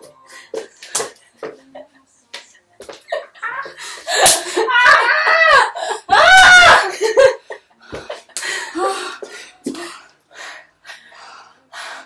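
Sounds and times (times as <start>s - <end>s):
woman laughing breathily: 3.1s - 4.7s, 5.4s - 6.1s
woman shrieking: 3.4s - 7.0s.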